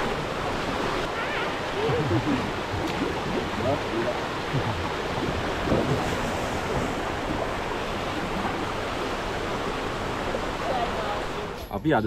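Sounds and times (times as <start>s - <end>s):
river water flowing over rocks: 0.0s - 11.6s
wind noise on microphone: 1.7s - 8.7s.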